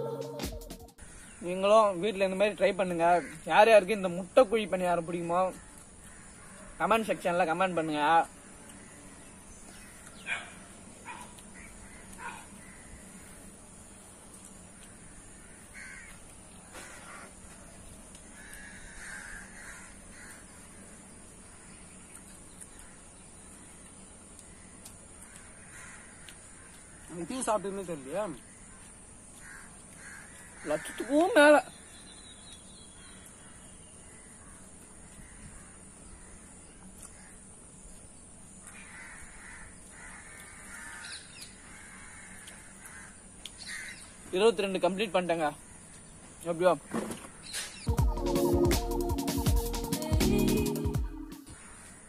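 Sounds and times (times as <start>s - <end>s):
crow cawing: 1.0s - 1.6s, 2.8s - 3.9s, 5.6s - 6.8s, 8.7s - 13.5s, 14.8s - 17.6s, 18.3s - 21.8s, 24.5s - 27.7s, 28.4s - 31.4s, 33.4s - 37.5s, 38.6s - 44.3s, 51.5s - 52.0s
harsh bird calls: 1.0s - 38.0s, 38.6s - 48.6s.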